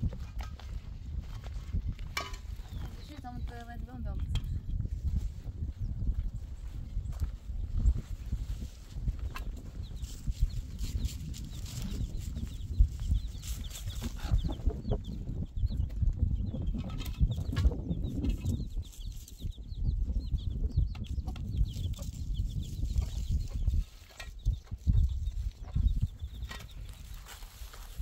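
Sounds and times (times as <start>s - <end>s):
chickens clucking: 9.2s - 27.7s.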